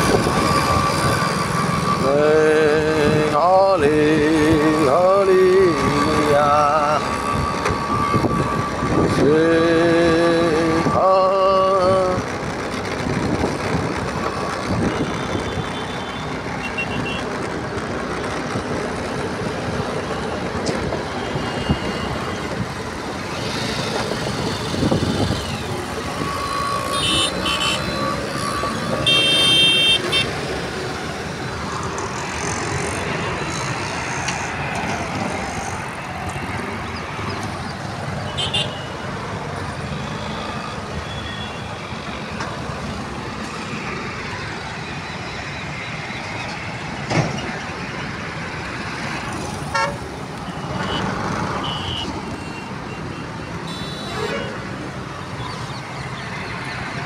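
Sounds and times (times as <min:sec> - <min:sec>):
road traffic passing: 0:00.0 - 0:57.0
vehicle horn toots: 0:26.8 - 0:28.1, 0:29.0 - 0:30.3, 0:38.4 - 0:39.0, 0:49.7 - 0:50.0, 0:50.8 - 0:52.1, 0:53.7 - 0:54.6.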